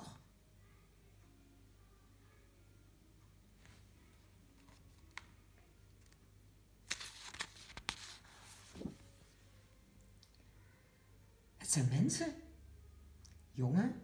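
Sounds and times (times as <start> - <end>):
book page turning: 4.5 - 6.2, 6.8 - 9.3.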